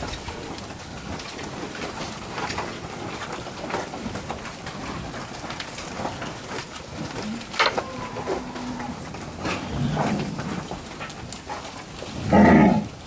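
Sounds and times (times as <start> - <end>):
hooves shifting in wet mud: 0.0 - 13.0.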